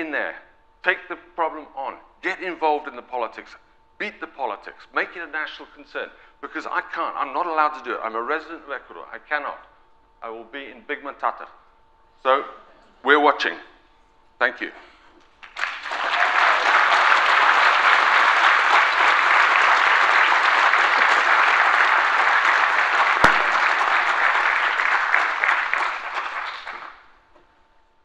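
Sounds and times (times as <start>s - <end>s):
audience applauding: 15.4s - 27.1s.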